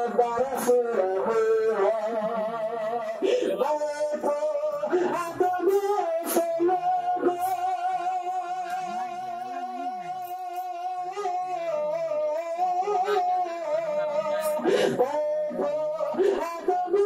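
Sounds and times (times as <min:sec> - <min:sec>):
man singing: 0:00.0 - 0:17.0.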